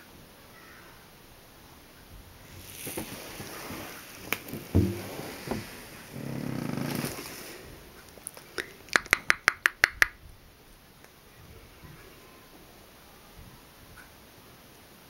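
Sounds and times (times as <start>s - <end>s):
sharp clicks: 8.2s - 10.2s.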